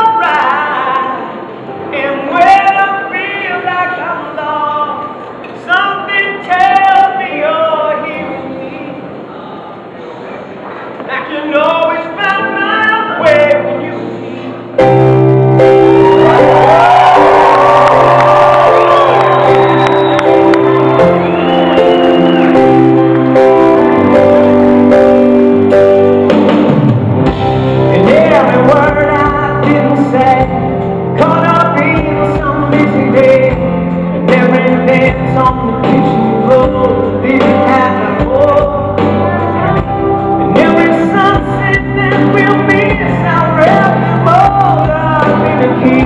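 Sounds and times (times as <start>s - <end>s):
man singing: 0.0s - 9.1s, 11.1s - 14.1s, 27.8s - 46.0s
pop-rock band playing: 14.7s - 46.0s.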